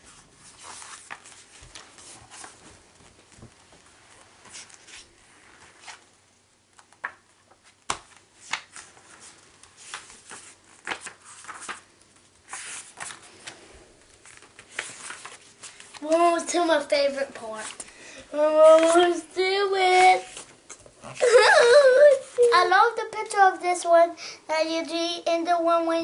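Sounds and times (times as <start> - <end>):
book pages flipping: 0.1 - 6.1, 6.7 - 17.9, 18.5 - 19.2, 19.8 - 21.0.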